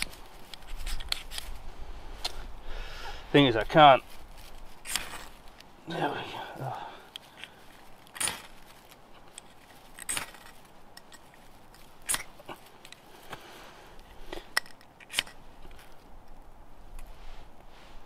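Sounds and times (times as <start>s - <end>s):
ferro rod scraping: 0.0s - 1.6s, 3.7s - 5.7s.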